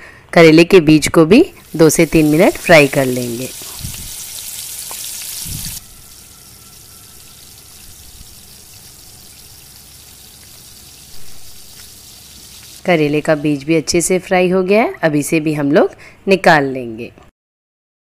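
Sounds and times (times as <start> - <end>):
seeds sizzling in hot oil: 1.4 - 14.0.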